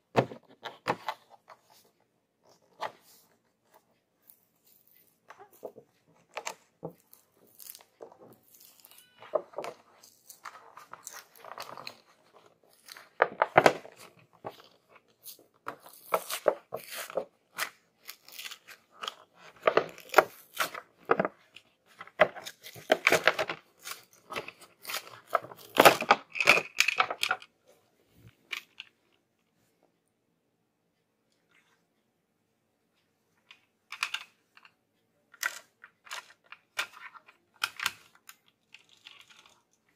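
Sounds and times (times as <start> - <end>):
plastic packaging crackling and tearing: 7.1 - 20.9, 37.6 - 39.8.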